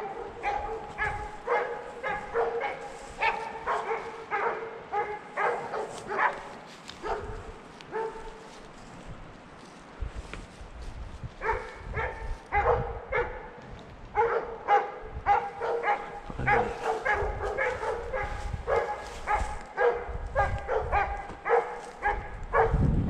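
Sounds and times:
dog yelping: 0.0 - 8.3, 14.2 - 22.7.

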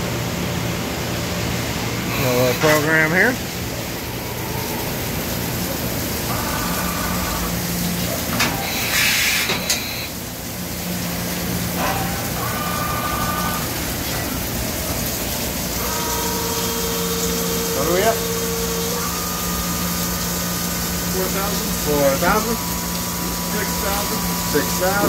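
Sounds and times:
steady machine whine: 0.0 - 25.0
coolant spray hissing: 1.4 - 25.0
lathe running: 11.5 - 25.0.

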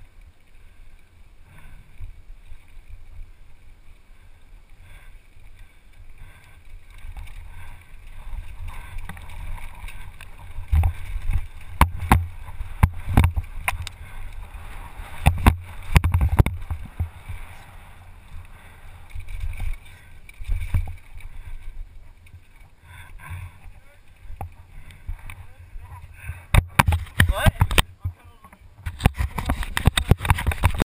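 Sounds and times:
bike knocking and rattling: 6.1 - 17.7, 18.6 - 30.8
wind rumble on camera: 6.8 - 22.7, 23.3 - 30.8.

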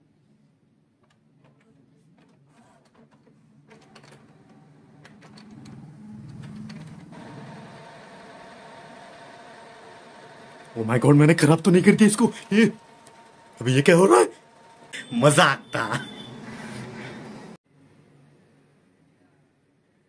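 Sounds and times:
printer mechanism whirring and clicking: 1.1 - 15.0.

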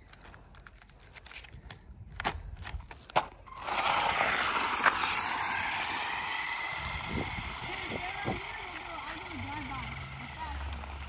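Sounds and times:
rc car hissing over leaves: 3.5 - 11.0.

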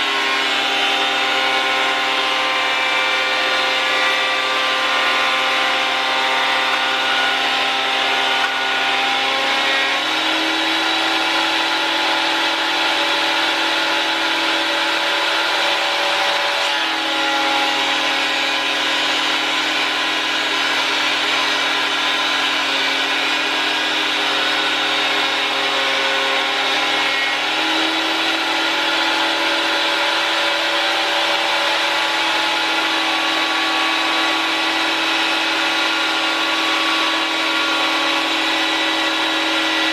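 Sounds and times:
planer running: 0.0 - 39.9.

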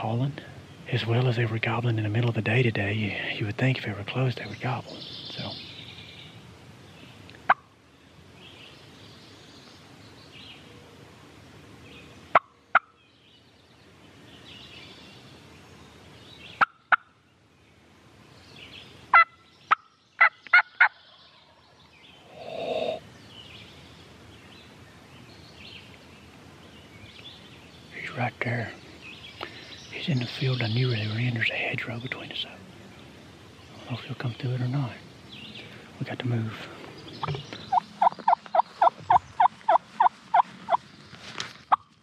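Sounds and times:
turkey call hen clucks: 19.1 - 21.2, 37.2 - 40.8
turkey gobbling: 19.1 - 21.2, 37.2 - 40.8.

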